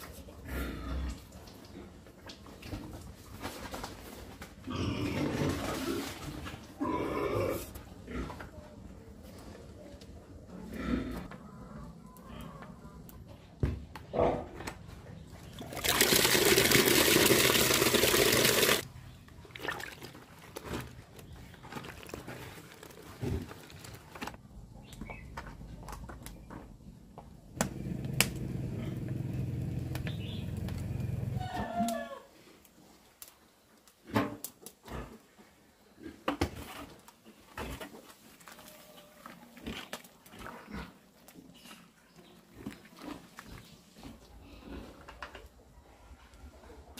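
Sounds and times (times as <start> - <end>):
hand mixing wet feed: 15.5 - 18.8, 19.5 - 24.2
tap water pouring into bucket: 15.6 - 18.8.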